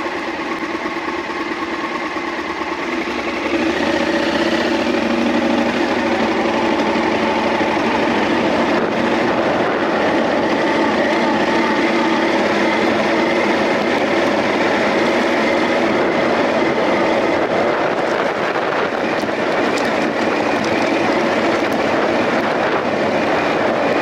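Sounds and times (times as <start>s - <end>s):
motorcycle engine running: 0.0s - 24.0s
tyres on gravel: 2.8s - 24.0s
wind noise: 4.6s - 24.0s.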